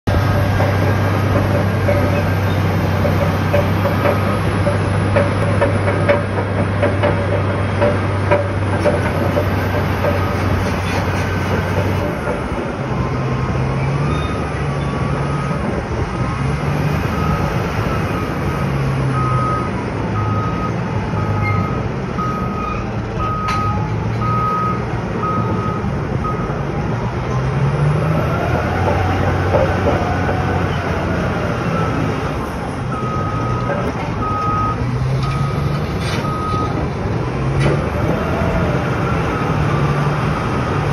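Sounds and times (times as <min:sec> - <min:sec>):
bulldozer diesel engine: 0:00.0 - 0:40.9
reversing alarm beeps: 0:11.7 - 0:18.4, 0:19.1 - 0:26.6, 0:32.9 - 0:36.8.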